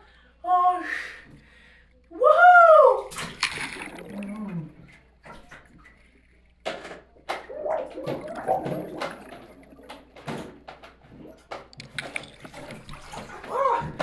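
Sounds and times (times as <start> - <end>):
muffled underwater water sloshing: 3.1 - 14.0.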